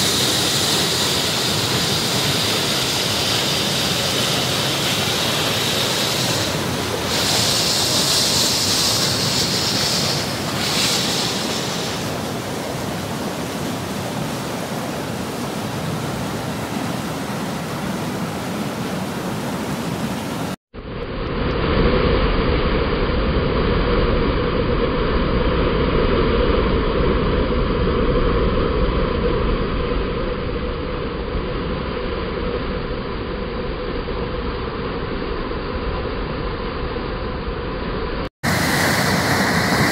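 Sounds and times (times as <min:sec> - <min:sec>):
water rushing over rocks: 0:00.0 - 0:20.6, 0:38.4 - 0:39.9.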